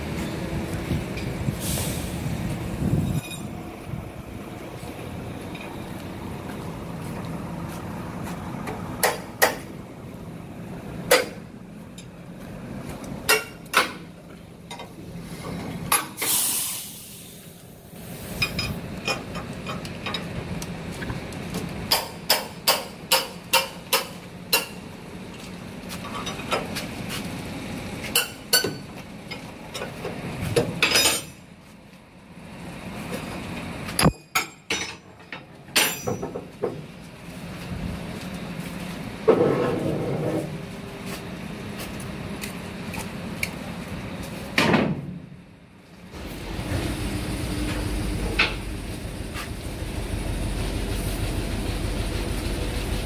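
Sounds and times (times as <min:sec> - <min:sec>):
hammer striking metal: 0:21.9 - 0:24.8, 0:35.8 - 0:36.4
metal knocks and clanks: 0:34.0 - 0:36.9.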